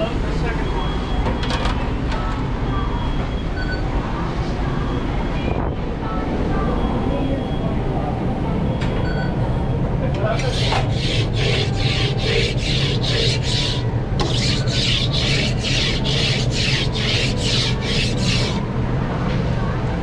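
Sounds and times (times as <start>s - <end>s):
steady low hum: 10.2s - 19.2s
metal scraper rasping on griddle: 10.3s - 18.6s.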